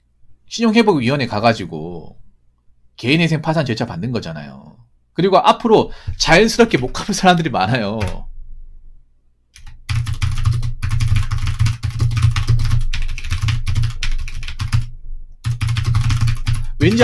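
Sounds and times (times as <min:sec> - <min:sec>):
fast typing on keyboard: 0:08.0 - 0:08.2, 0:09.6 - 0:17.0.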